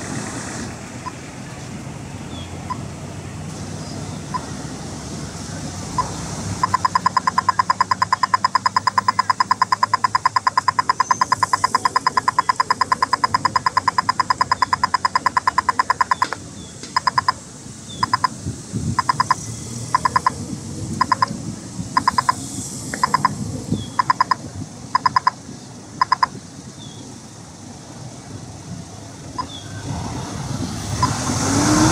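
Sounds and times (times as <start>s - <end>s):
crossing signal ticking: 6.0s - 18.4s, 19.0s - 25.4s, 26.0s - 26.4s.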